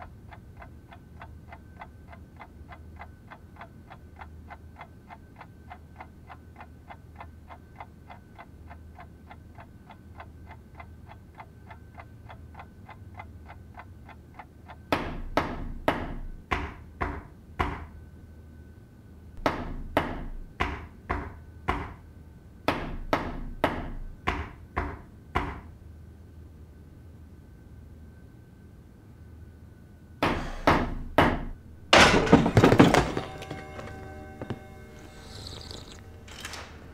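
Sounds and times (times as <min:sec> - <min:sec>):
clock ticking rapidly: 0:00.0 - 0:15.4
loud sharp knocks: 0:30.2 - 0:34.7.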